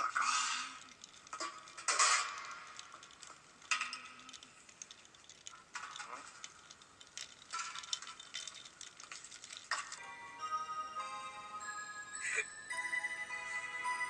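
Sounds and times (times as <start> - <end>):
ice cubes clinking against glass: 0.5 - 10.2.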